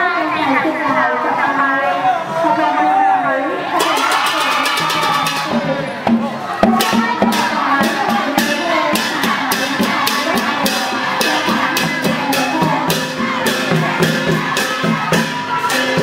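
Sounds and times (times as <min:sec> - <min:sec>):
crowd voices: 0:00.0 - 0:16.0
music with drums: 0:03.8 - 0:16.0.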